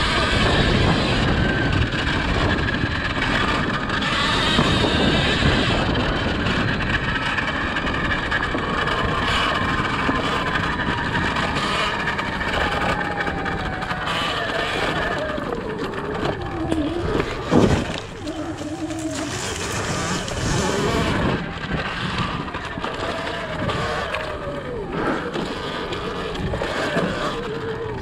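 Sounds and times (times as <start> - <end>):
electric motor whine: 0.0 - 28.0
wind and tyre noise: 0.0 - 28.0.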